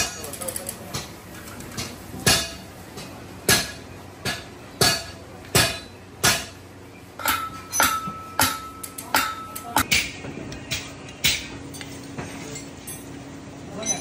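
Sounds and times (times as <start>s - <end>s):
hammer beating sheet metal: 1.8s - 2.7s, 3.5s - 6.6s, 7.2s - 10.2s.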